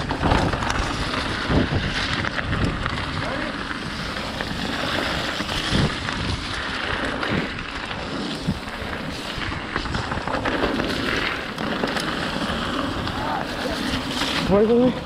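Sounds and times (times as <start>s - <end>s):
tyres on loose dirt: 0.0s - 15.0s
wind over microphone: 0.0s - 15.0s.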